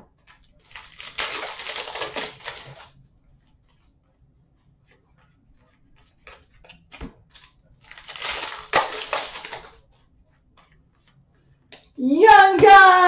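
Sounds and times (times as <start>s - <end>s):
foil wrapper tearing open: 0.6s - 2.9s, 7.8s - 9.8s.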